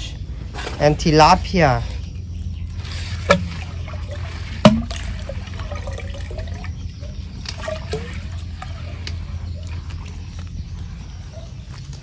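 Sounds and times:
water trickling in pond: 2.1 - 10.8.

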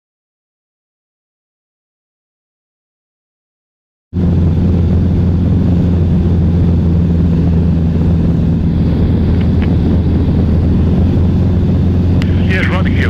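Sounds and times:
small plane engine droning: 4.2 - 13.0.

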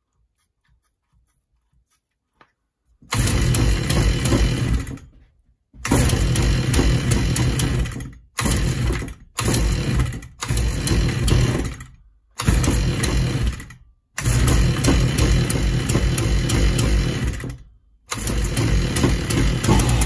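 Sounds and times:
string trimmer engine running rough: 3.1 - 5.0, 5.9 - 8.0, 8.6 - 11.7, 12.4 - 13.6, 14.2 - 17.5, 18.1 - 20.0.

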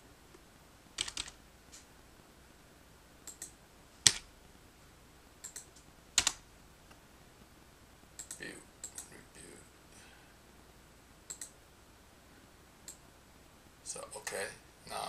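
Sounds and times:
keyboard keystrokes: 1.0 - 1.4, 3.3 - 4.3, 5.4 - 6.4
mouse clicks: 3.2 - 4.3, 5.4 - 7.0, 8.2 - 9.1, 11.3 - 11.6, 12.8 - 13.0.

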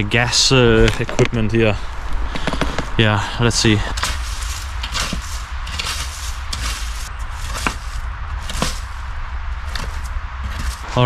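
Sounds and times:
steady low rumble: 0.0 - 11.0
dry sticks snapping: 3.9 - 10.9.

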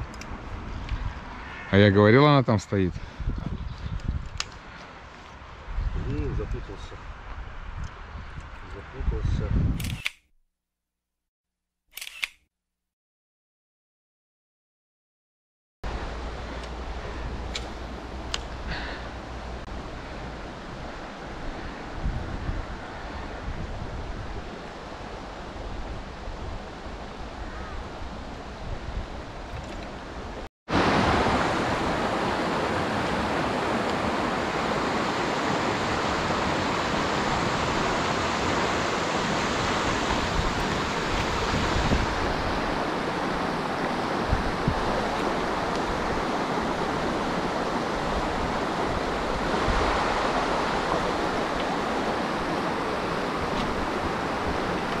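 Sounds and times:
river water running over rocks: 29.9 - 55.0.

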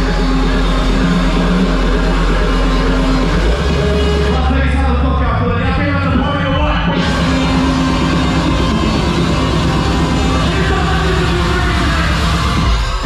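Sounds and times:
loud music with steady bass: 0.0 - 13.0.

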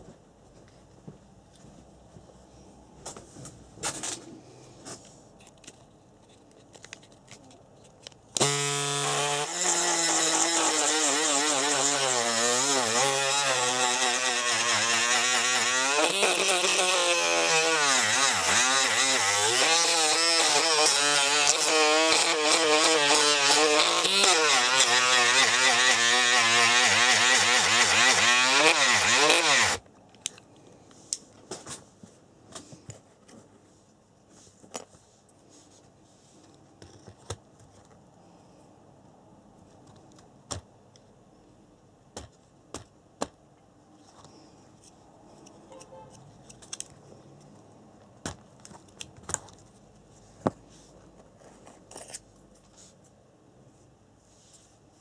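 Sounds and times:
electric motor whining: 8.4 - 29.8.

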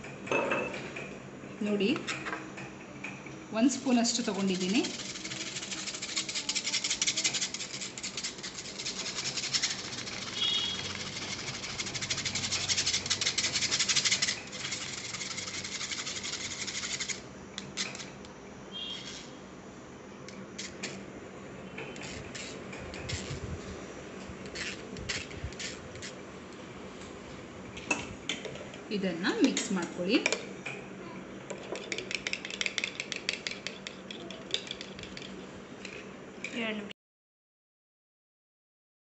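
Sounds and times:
spoon scraping a mesh strainer: 3.8 - 17.2.

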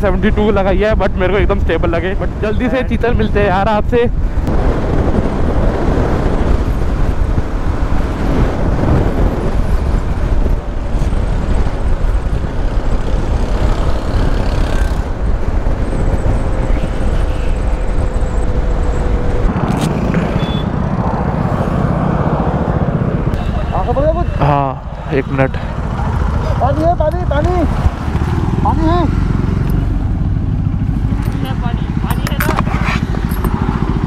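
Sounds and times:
wind rush over microphone: 0.0 - 23.4, 29.4 - 34.0
motorcycle engine running: 25.5 - 34.0.

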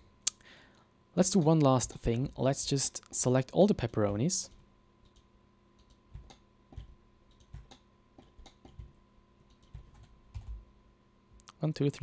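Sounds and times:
faint steady hum: 0.0 - 12.0
computer mouse clicking: 5.0 - 10.6.

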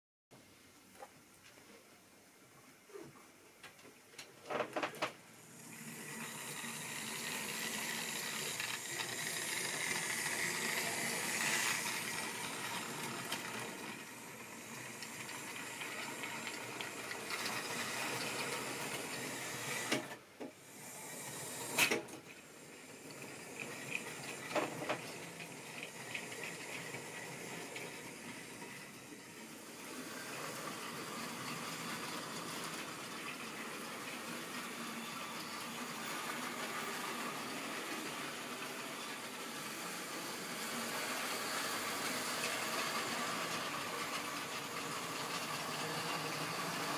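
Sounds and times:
model train whirring hiss: 5.4 - 46.9.

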